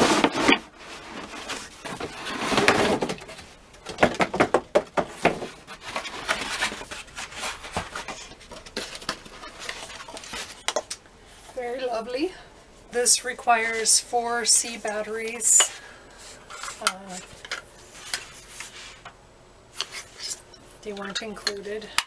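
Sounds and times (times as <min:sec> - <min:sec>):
cardboard box handling: 0:05.0 - 0:10.7.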